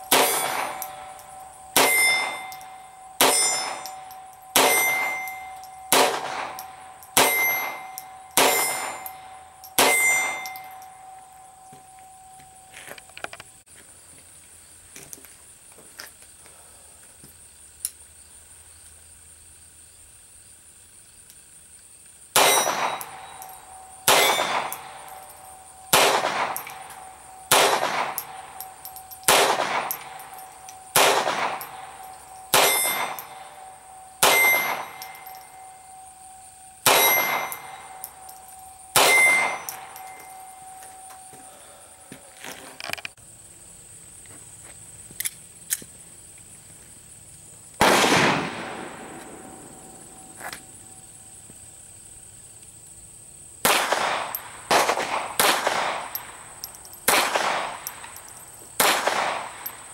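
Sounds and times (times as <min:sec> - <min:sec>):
pistol shots: 0:00.1 - 0:10.6, 0:22.4 - 0:23.4, 0:24.0 - 0:25.1, 0:25.9 - 0:35.4, 0:36.8 - 0:38.1, 0:38.9 - 0:40.3, 0:47.8 - 0:49.6, 0:53.6 - 0:56.3, 0:57.0 - 0:58.2, 0:58.8 - 0:59.7.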